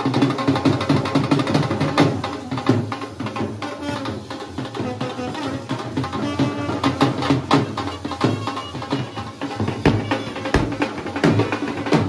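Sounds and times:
music with drums and hand percussion: 0.0 - 12.0.

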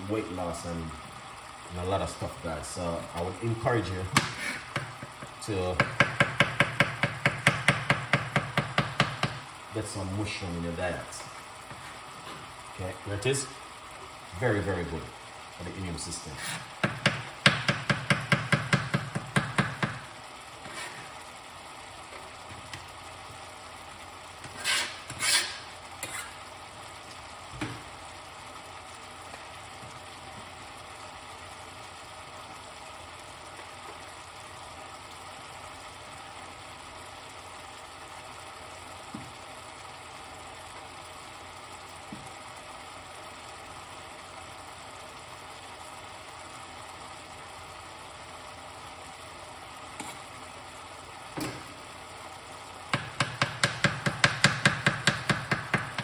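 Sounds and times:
vegetables sizzling in a pot: 0.0 - 56.0
spoon knocking pot: 4.2 - 9.4, 16.8 - 20.0, 52.9 - 56.0
spoon scraping pot: 24.4 - 26.4.

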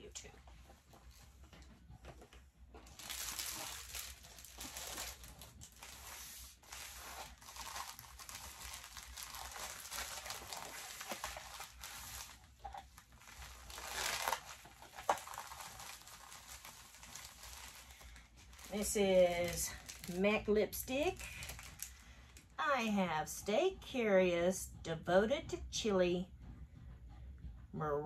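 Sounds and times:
plastic packaging crinkling: 2.8 - 20.5, 21.1 - 22.0.

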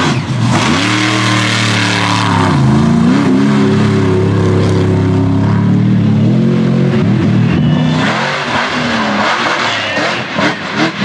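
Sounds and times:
truck engine revving: 0.0 - 11.0.

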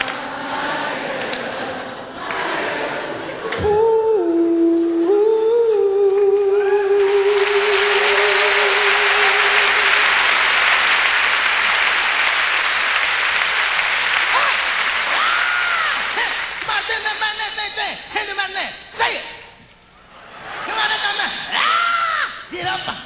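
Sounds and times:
man singing a long note: 3.6 - 10.1
audience applause: 6.8 - 17.0.

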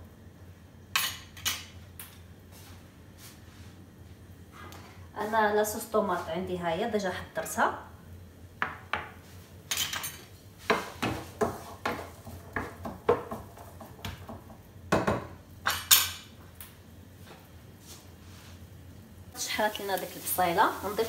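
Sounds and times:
wooden spoon knocking frying pan: 10.7 - 15.4.

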